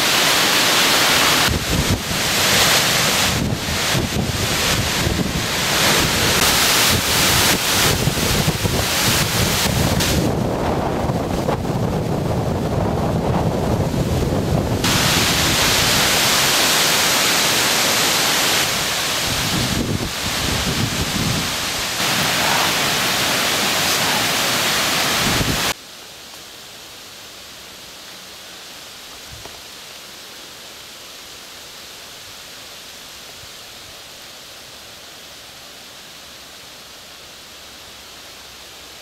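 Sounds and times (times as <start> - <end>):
quiet steady wind hiss: 0.0 - 39.0
wind buffeting microphone: 1.4 - 16.5, 18.7 - 25.7.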